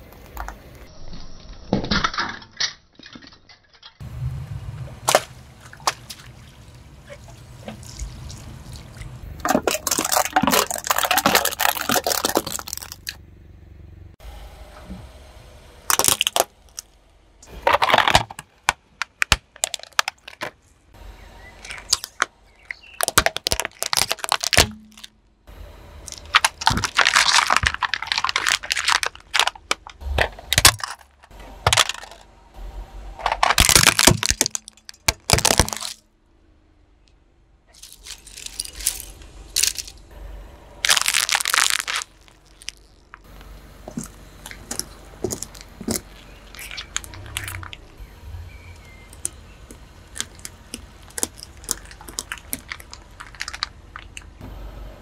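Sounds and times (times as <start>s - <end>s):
objects crushed under car tyre: 9.2s - 13.2s, 15.9s - 20.6s, 21.6s - 25.2s, 26.0s - 32.3s, 33.2s - 36.0s, 40.8s - 48.0s, 48.6s - 54.4s.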